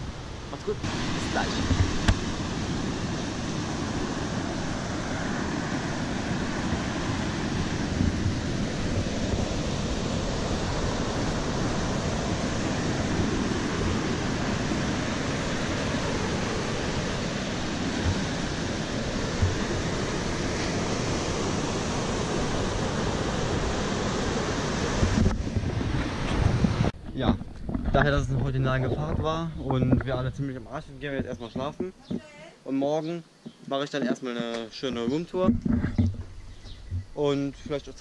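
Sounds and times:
waves breaking on beach: 0:00.0 - 0:27.0.

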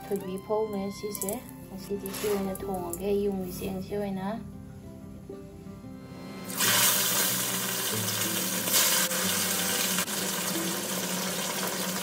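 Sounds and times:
fish sizzling in hot oil: 0:06.5 - 0:12.0.

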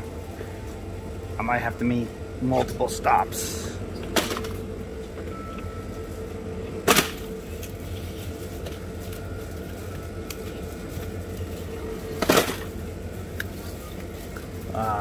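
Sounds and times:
steady hum: 0:00.0 - 0:15.0
packages rustling and knocking: 0:06.9 - 0:12.8.

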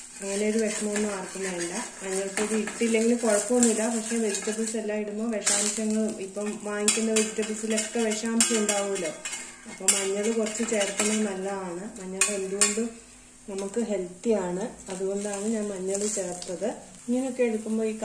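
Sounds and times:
spatula scraping on griddle: 0:00.0 - 0:11.5
frying sizzle: 0:00.0 - 0:18.0.

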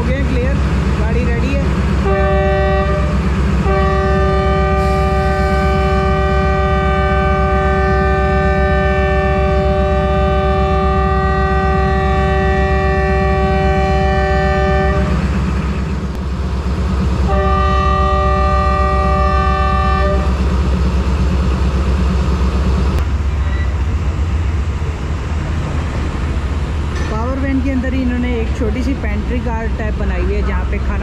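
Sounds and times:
diesel engine rumble: 0:00.0 - 0:31.0
locomotive air horn: 0:02.0 - 0:15.2, 0:17.3 - 0:20.3.

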